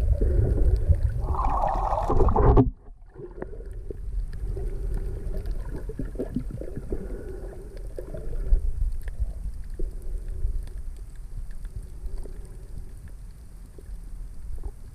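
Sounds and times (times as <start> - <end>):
faint clicks and crackles: 0.0 - 1.2, 2.2 - 14.9
underwater rumble of moving water: 0.0 - 14.9.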